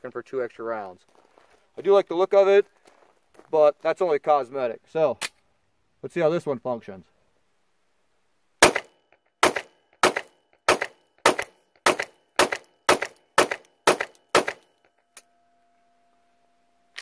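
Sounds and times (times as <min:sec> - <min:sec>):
pistol shots: 0:08.6 - 0:14.7.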